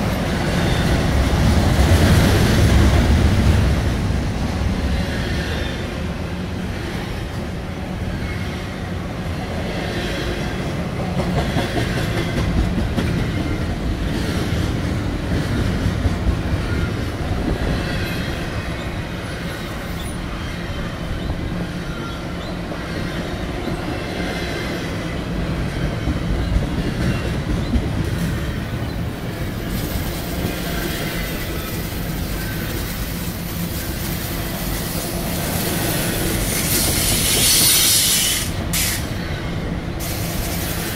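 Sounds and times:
freight train rolling past: 0.0 - 40.9.

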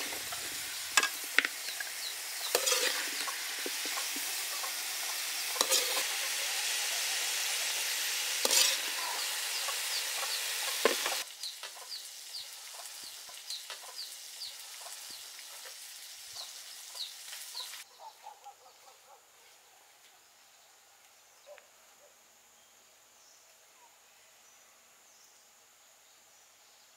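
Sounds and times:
metal ladle scraping a wok: 0.0 - 11.2
food sizzling in a wok: 0.0 - 17.9.

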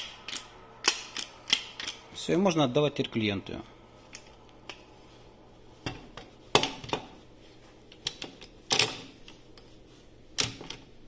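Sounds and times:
metallic clicks and clunks: 7.9 - 9.2.

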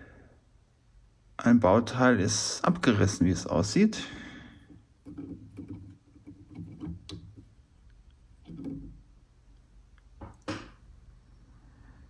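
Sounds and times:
fingers handling wires in metal chassis: 4.7 - 9.6.

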